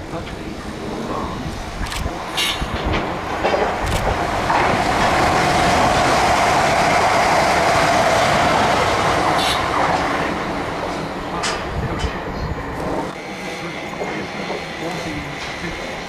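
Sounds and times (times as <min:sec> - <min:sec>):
electric train passing: 0:00.0 - 0:16.0
train wheels clicking over rail joints: 0:01.6 - 0:13.2.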